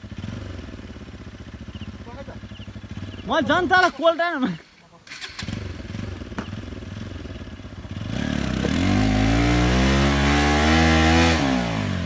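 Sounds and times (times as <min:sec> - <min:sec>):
motorcycle engine revving: 0:00.0 - 0:03.9, 0:05.0 - 0:12.0.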